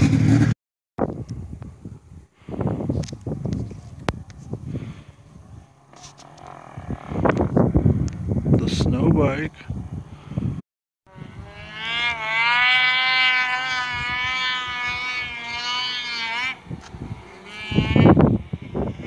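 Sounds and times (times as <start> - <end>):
distant snowmobile engine droning: 3.3 - 8.8, 11.1 - 19.0.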